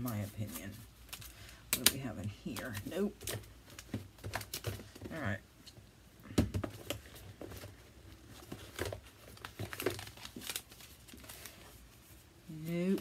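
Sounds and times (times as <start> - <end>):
paper rustling and crinkling: 6.7 - 13.0.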